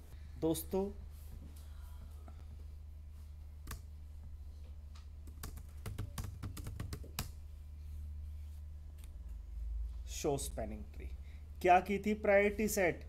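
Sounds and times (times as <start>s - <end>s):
steady low hum: 0.0s - 13.0s
typing on computer keyboard: 5.3s - 7.3s.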